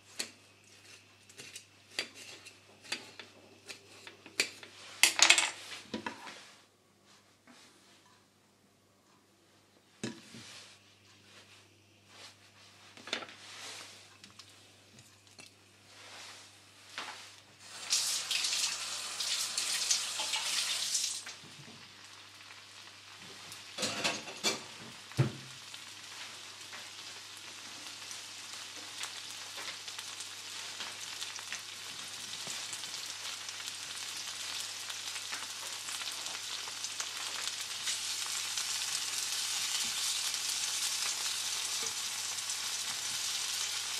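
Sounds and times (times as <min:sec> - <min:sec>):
tomatoes sizzling in hot oil: 0:17.6 - 0:43.9.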